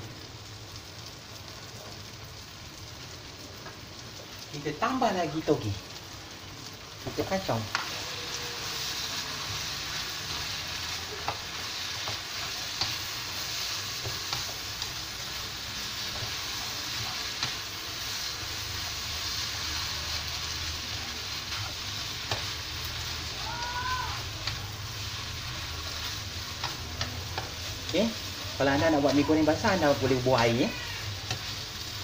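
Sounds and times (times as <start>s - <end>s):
noodles sizzling in a wok: 0.0s - 32.0s
spatula scraping a wok: 7.7s - 23.3s.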